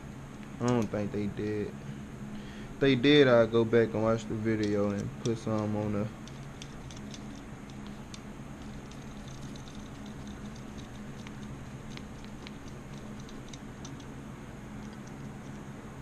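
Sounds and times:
steady low hum: 0:00.0 - 0:16.0
screwdriver clicking and scraping: 0:04.6 - 0:14.1.

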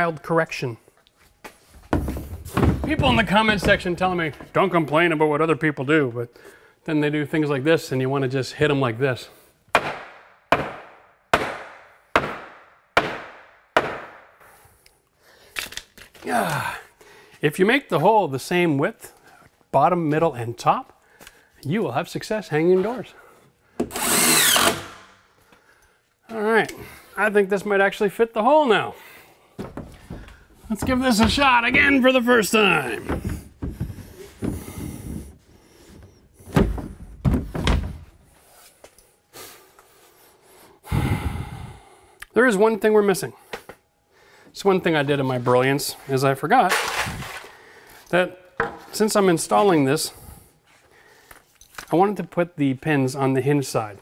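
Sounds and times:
heavy knocks: 0:01.9 - 0:04.6, 0:29.6 - 0:35.4, 0:36.5 - 0:38.1
hammer striking wooden stud: 0:09.7 - 0:14.4
door frame scraping against studs: 0:29.6 - 0:38.2.

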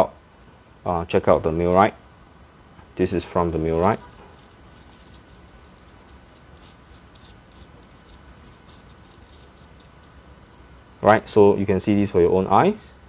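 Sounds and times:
fingertip rubbing coffee on paper: 0:03.3 - 0:10.2.

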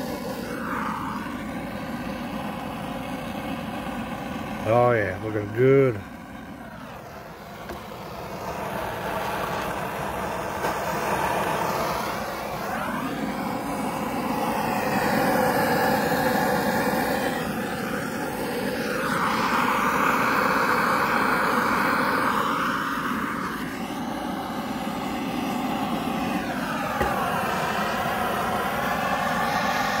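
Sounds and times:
torch flame hissing: 0:00.0 - 0:30.0.

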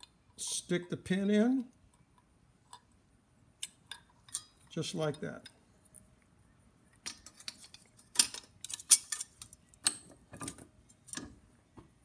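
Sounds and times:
small metal parts clicking: 0:03.6 - 0:04.7, 0:07.0 - 0:11.3.

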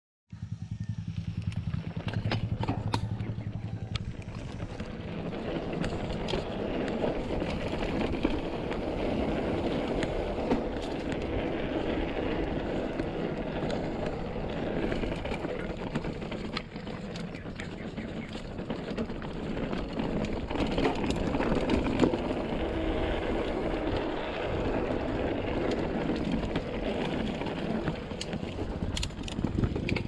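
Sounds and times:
low rapid pulsing buzz: 0:00.3 - 0:05.3
bike tyres rumbling on dirt: 0:00.3 - 0:30.0
bike frame rattling: 0:00.4 - 0:30.0.

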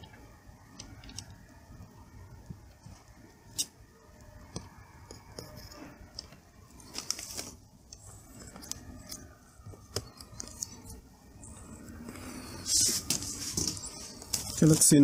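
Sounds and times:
plastic and metal clicks and scrapes: 0:04.5 - 0:11.0.

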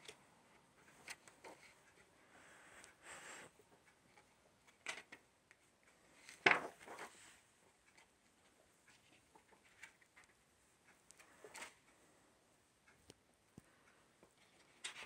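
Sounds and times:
book pages turning: 0:06.2 - 0:07.3.

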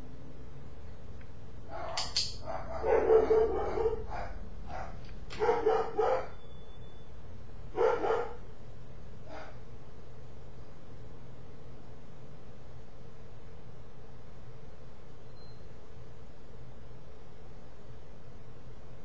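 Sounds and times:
dog barking: 0:01.7 - 0:06.4, 0:07.7 - 0:08.5, 0:09.2 - 0:09.6.

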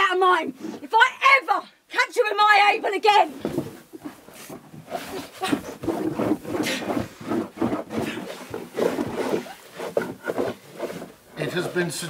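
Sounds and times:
straw rustling: 0:03.1 - 0:12.0
people grunting and straining: 0:05.0 - 0:11.8.

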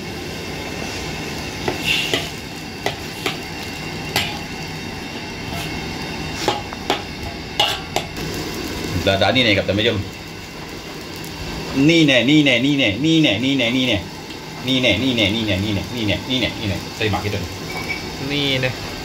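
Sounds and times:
steady sizzle: 0:00.0 - 0:19.0
metal spatula scraping a wok: 0:01.6 - 0:04.5, 0:05.1 - 0:08.1.

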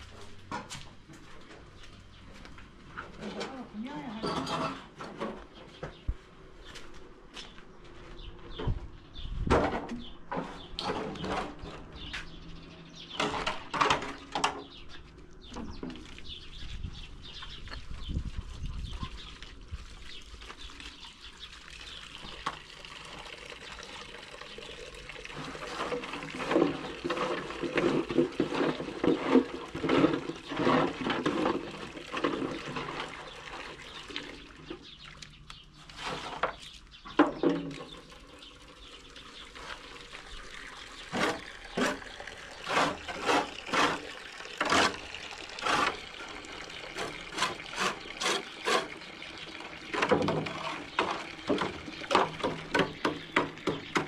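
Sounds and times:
water pouring and splashing: 0:15.5 - 0:54.0
knocks and clatter: 0:50.0 - 0:54.0.

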